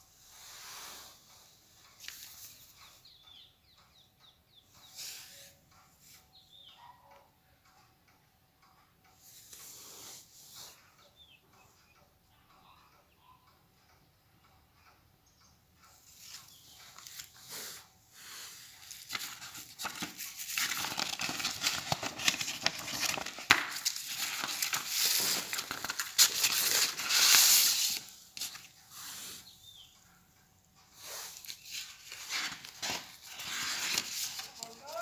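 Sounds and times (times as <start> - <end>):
paper card rustling and scraping: 16.1 - 29.5, 31.0 - 35.0.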